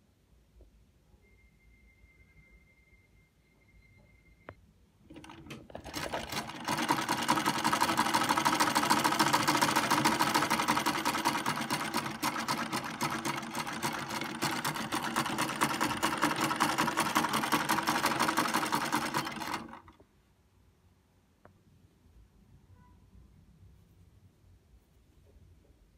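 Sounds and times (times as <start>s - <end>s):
sewing machine stitching: 5.1s - 20.0s.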